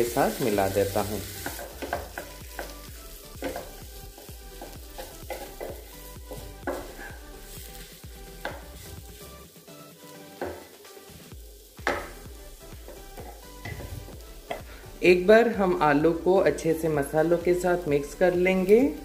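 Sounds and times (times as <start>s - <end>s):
light sizzle: 0.0s - 19.0s
wooden spatula scraping a pan: 3.4s - 7.7s.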